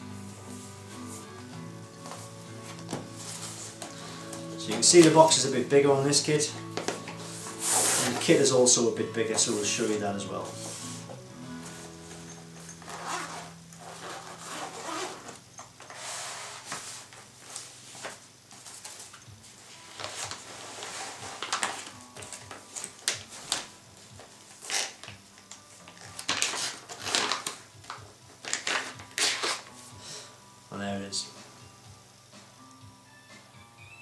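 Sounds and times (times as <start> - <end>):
zipper opening: 7.2 - 8.4, 11.6 - 17.1, 19.8 - 21.6, 24.6 - 25.1
rustling and scraping of case: 10.5 - 25.2.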